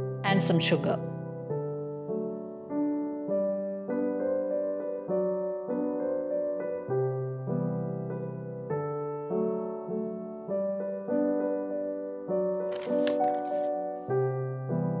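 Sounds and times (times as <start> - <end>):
soft keyboard music: 0.0 - 15.0.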